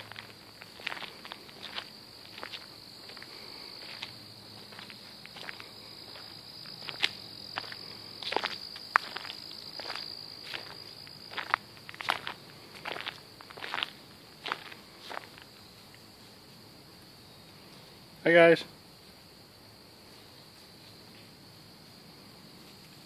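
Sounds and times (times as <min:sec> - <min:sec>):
footsteps on gravel: 0:00.0 - 0:15.6
insects calling: 0:00.0 - 0:23.0.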